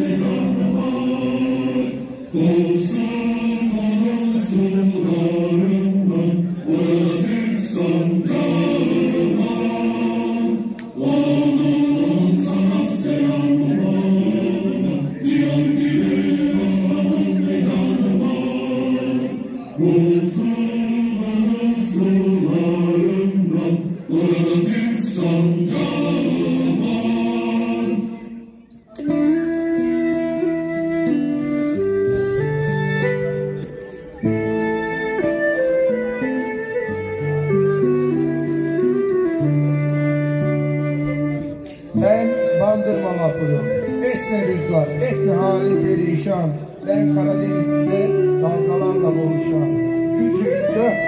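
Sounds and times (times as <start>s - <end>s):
choir singing held notes: 0.0s - 34.9s
instrumental melody: 26.3s - 51.0s.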